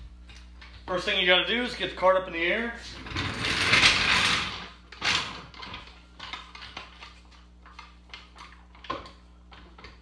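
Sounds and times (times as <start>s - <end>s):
floor jack clicking and clanking: 2.9s - 7.0s.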